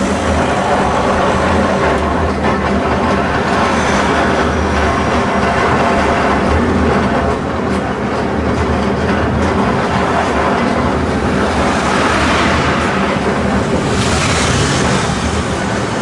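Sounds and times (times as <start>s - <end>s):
tram wheels rumbling on rails: 0.0s - 16.0s
car passing: 11.2s - 16.0s.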